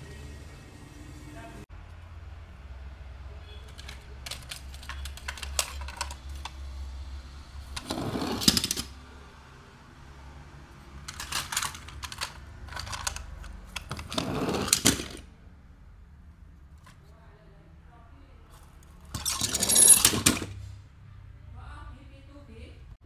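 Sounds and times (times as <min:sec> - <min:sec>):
plastic scraping: 0:03.6 - 0:06.6, 0:07.7 - 0:08.9, 0:11.1 - 0:15.2.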